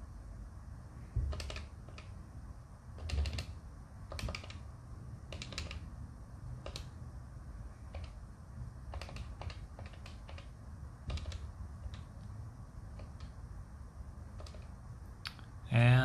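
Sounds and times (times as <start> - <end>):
dull thump of key presses: 1.2 - 2.0.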